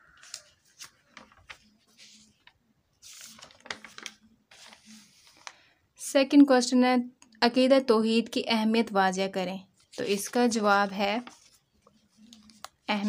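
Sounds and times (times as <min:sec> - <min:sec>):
paper pages rustling: 0:00.0 - 0:05.7, 0:09.7 - 0:13.0.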